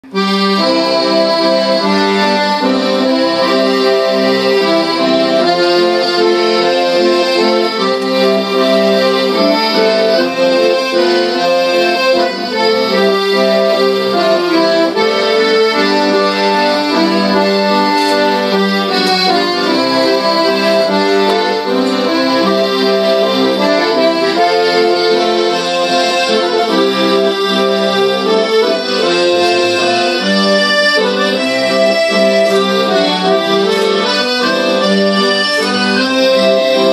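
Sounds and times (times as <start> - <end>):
accordion-like melody: 0.0 - 36.9
steady low drone: 28.0 - 33.7.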